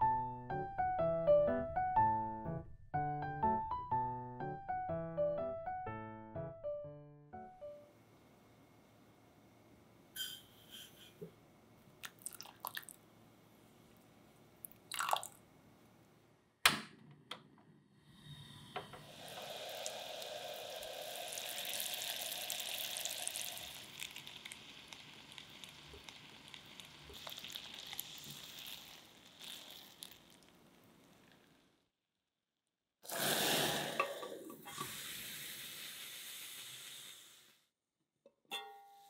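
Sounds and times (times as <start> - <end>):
syrup boiling and bubbling: 12.0 - 13.0, 14.7 - 15.4, 19.0 - 31.8, 33.0 - 37.5
water pouring into saucepan: 12.0 - 13.0, 14.9 - 15.4, 19.0 - 31.5, 33.1 - 35.4.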